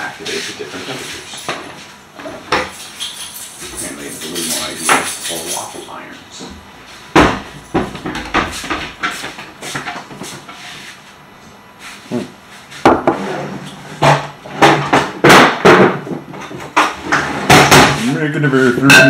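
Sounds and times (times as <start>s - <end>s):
cupboard closing knocks: 7.1s - 8.6s
dishes clattering: 18.8s - 19.0s.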